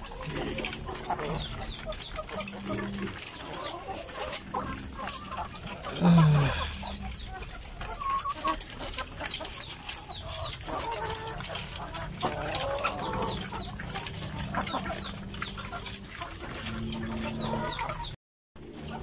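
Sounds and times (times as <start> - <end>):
hens clucking: 0.0 - 19.0.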